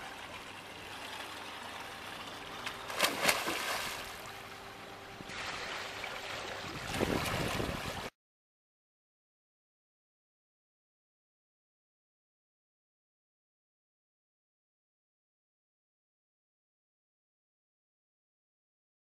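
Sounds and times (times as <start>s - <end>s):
person diving splash: 2.9s - 4.2s
water wash: 5.3s - 8.1s.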